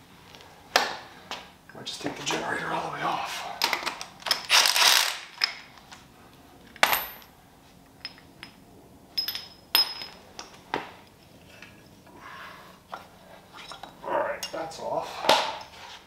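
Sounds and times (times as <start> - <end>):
metal parts clinking and clanking: 3.6 - 5.7, 9.2 - 10.6, 13.6 - 14.7.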